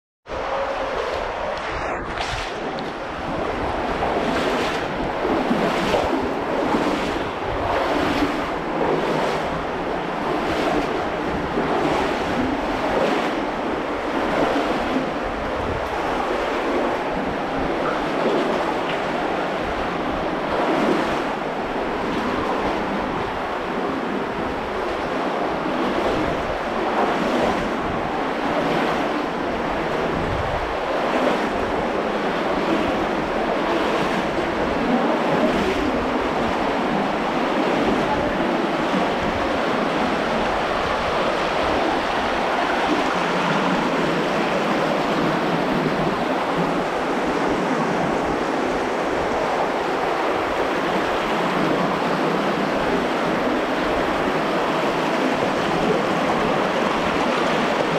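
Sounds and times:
stream water rushing: 0.3s - 57.9s.

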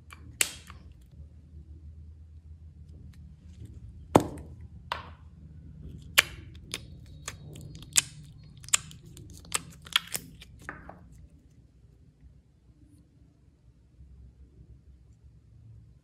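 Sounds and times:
slime popping and clicking: 0.4s - 0.8s, 6.1s - 10.7s.

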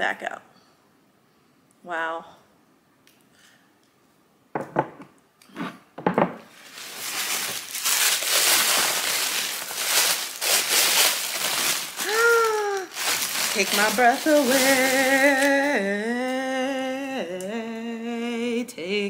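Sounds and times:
knocks on wooden table: 4.6s - 5.1s, 6.0s - 6.4s
packing paper rustling: 6.5s - 16.4s.

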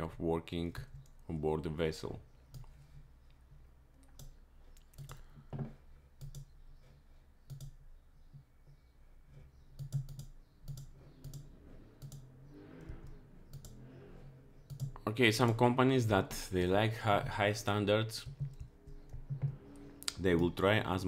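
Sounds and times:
mouse and key clicks: 4.0s - 5.2s, 6.2s - 6.7s, 7.4s - 8.5s, 9.6s - 13.8s, 14.6s - 15.0s.

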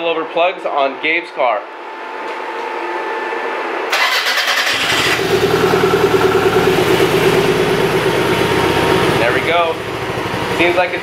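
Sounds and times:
starter motor cranking: 3.9s - 5.5s
engine idling with misfire: 3.9s - 11.0s.

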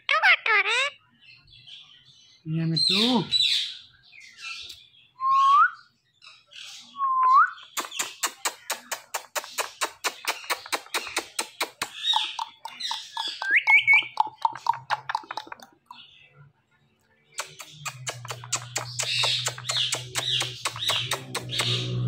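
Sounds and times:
parakeet squawking and chattering: 0.0s - 1.0s, 7.6s - 16.1s, 17.4s - 22.0s
kissing smacks: 7.7s - 12.0s, 17.4s - 21.9s.

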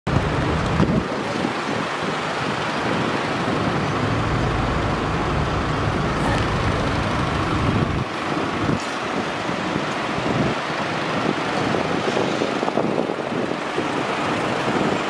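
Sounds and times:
traffic rumble: 0.1s - 15.0s
car engine running at low speed: 0.2s - 11.9s.

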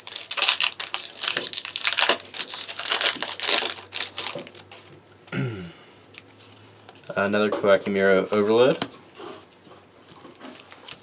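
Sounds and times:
foil wrapper crinkling: 0.0s - 4.8s, 10.0s - 11.0s.

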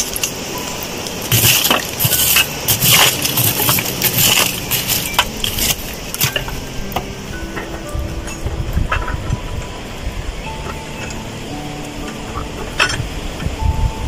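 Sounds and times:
poker scraping charcoal embers: 1.0s - 6.6s.

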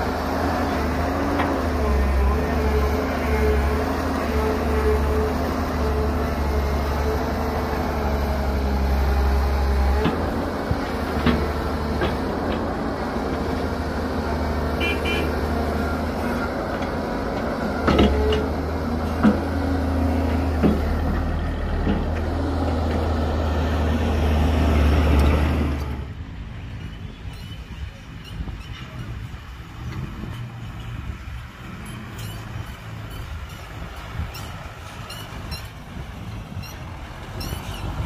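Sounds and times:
diesel engines droning: 0.0s - 38.0s
sharp knocks and clanks: 16.8s - 18.5s.

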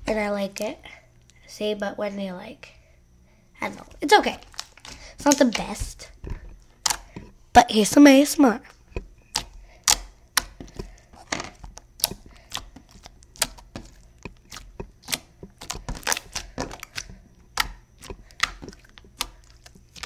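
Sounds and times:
slime squishing and popping: 4.3s - 5.8s, 9.2s - 20.0s.

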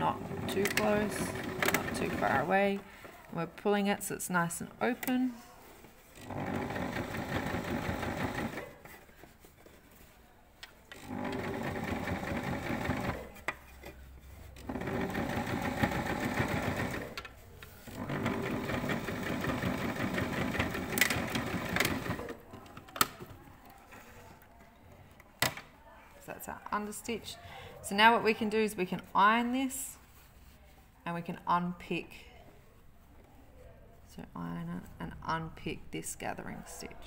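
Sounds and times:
sewing machine stitching: 0.0s - 2.9s, 6.2s - 9.0s, 10.9s - 13.5s, 14.6s - 23.2s.

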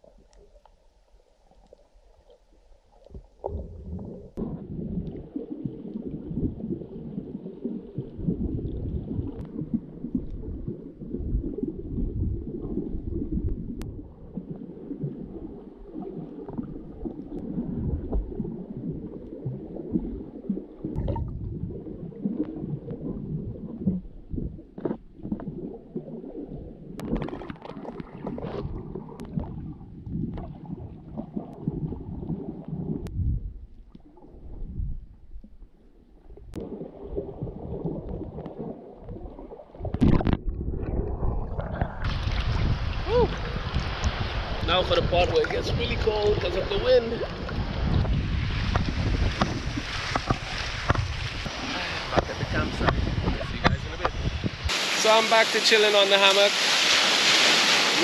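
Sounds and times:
muffled underwater water rumbling: 0.0s - 55.6s
hissing splash: 54.7s - 58.0s.

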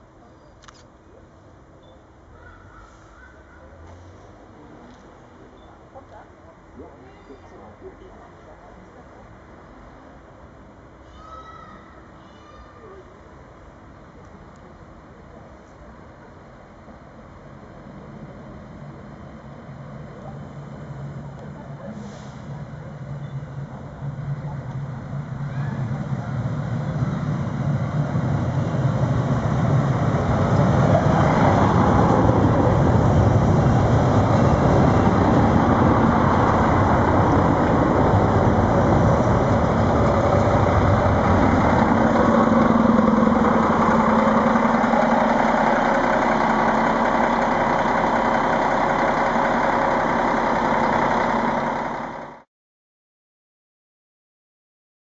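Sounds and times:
diesel railcar passing: 0.0s - 52.5s
low engine hum: 16.7s - 52.5s.

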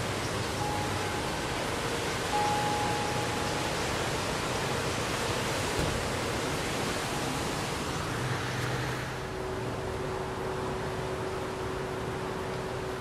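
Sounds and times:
wind chimes ringing: 0.2s - 5.0s.

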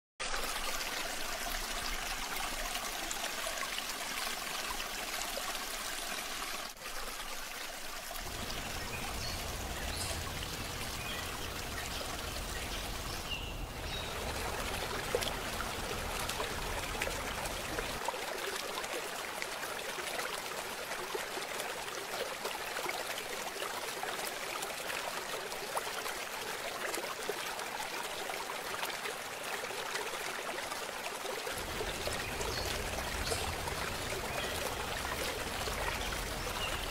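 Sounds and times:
water flowing in canal: 0.2s - 36.9s.

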